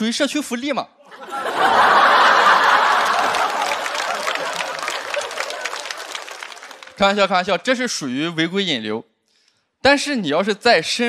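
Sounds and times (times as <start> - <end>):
audience laughing: 1.1 - 7.0
audience applauding: 1.3 - 7.2.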